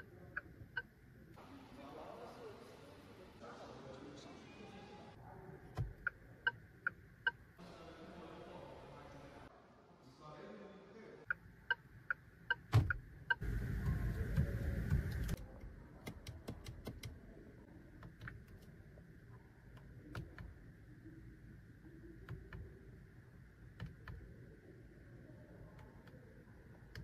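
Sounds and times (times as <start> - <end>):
steering wheel buttons clicking: 16.0 - 17.2, 23.8 - 24.2.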